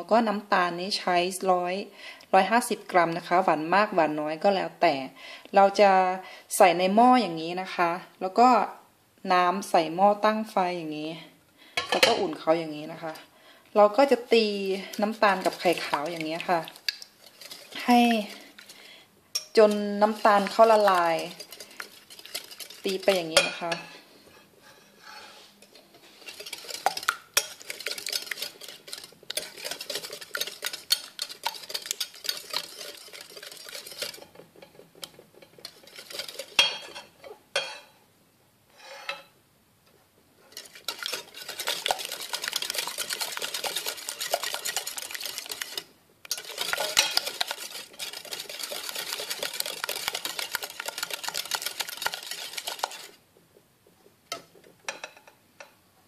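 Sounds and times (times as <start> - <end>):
whisk clicking against glass bowl: 19.4 - 23.6, 26.3 - 37.0, 40.6 - 53.2.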